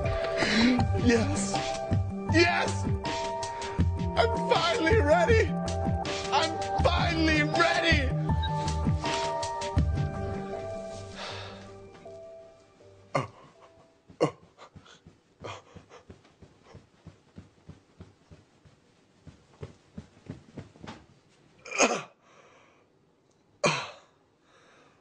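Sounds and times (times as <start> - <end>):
loud breathy gasps: 11.2 - 11.7.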